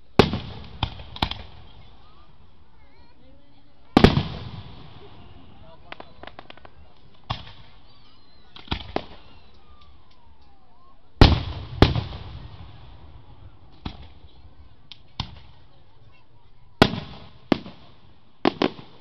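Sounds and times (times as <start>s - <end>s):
firework shells booming: 0.1s - 1.9s, 4.0s - 7.9s, 8.6s - 9.7s, 11.2s - 14.3s, 16.8s - 19.0s
smaller firework bangs: 0.1s - 2.2s, 4.0s - 9.9s, 11.2s - 15.8s, 16.8s - 19.0s.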